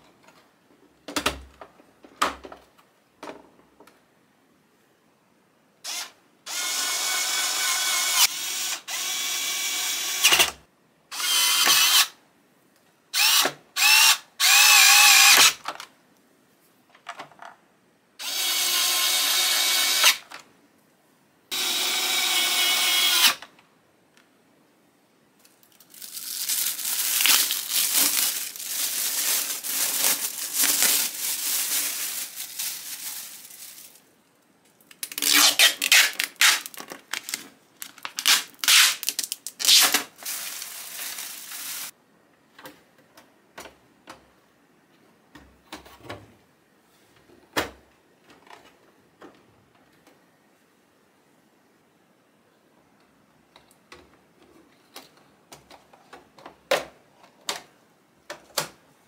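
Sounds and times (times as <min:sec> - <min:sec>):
electric screwdriver whirring: 0:18.2 - 0:20.2
plastic bag crinkling: 0:25.5 - 0:34.1, 0:34.8 - 0:41.9.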